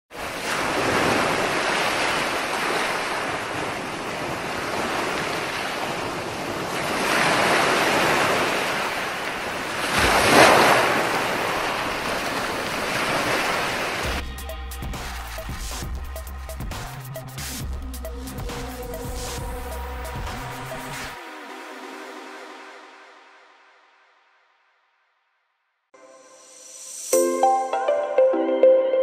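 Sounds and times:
sea surf washing over rocks: 0.1s - 14.2s
music with a beat: 14.1s - 21.2s, 26.7s - 29.0s.

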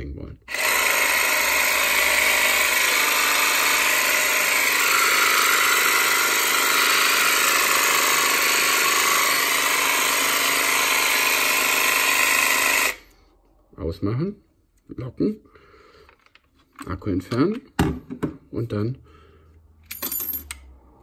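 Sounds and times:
cordless jigsaw whining: 0.5s - 13.2s.

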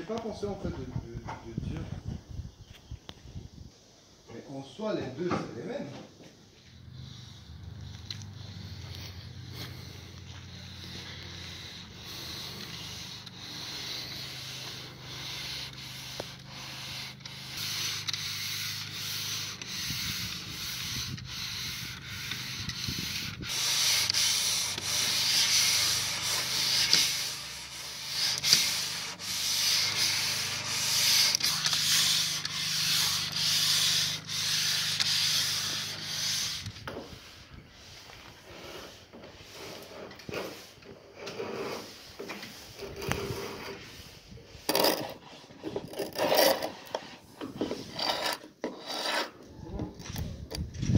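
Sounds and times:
hand rubbing and scraping: 5.7s - 50.9s
sandpaper hissing on wood: 6.5s - 49.3s
electric sander motor hum: 10.3s - 36.5s.

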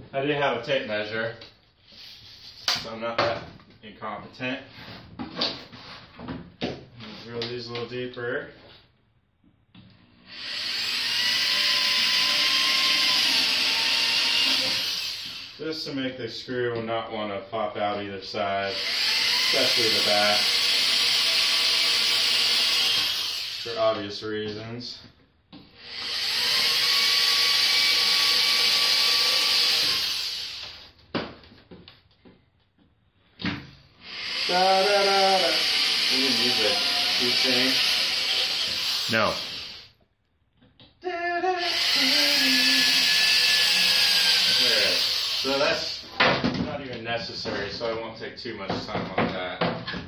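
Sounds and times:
power drill boring into wood: 10.3s - 15.6s, 18.7s - 23.8s, 25.8s - 30.9s, 34.0s - 39.9s, 41.6s - 46.1s.

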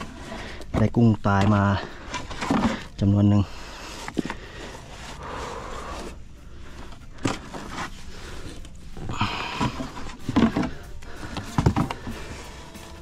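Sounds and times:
handling scrapes and knocks: 0.0s - 3.2s, 6.8s - 13.0s.

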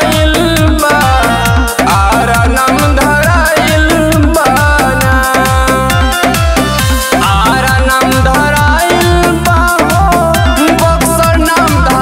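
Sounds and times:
song with steady beat: 0.0s - 12.0s
bending melodic line: 3.6s - 12.0s
deep sliding bass notes: 8.1s - 10.4s.

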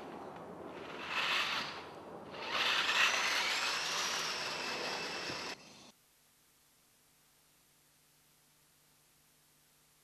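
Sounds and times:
electric motors whirring: 0.8s - 5.9s.

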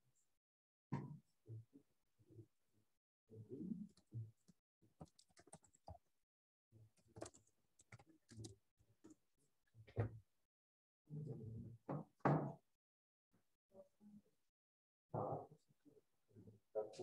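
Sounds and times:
typing on computer keyboard: 5.0s - 6.0s, 7.0s - 8.5s.

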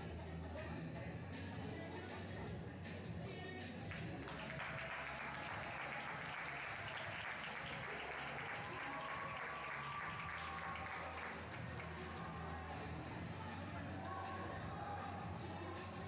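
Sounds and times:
music: 0.0s - 16.0s
audience applauding: 4.0s - 11.8s.

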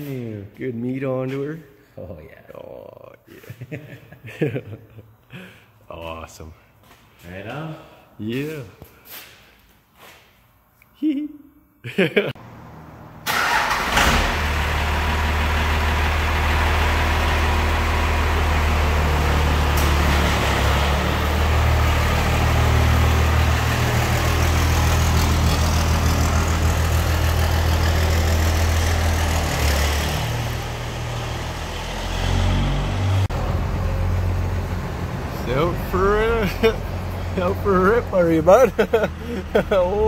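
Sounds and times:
diesel truck engine running: 12.4s - 40.0s.

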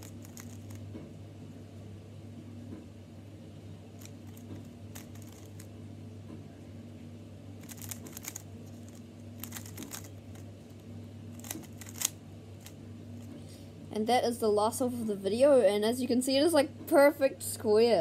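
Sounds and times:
puzzle cube layers clicking: 7.6s - 10.1s, 11.4s - 12.2s.

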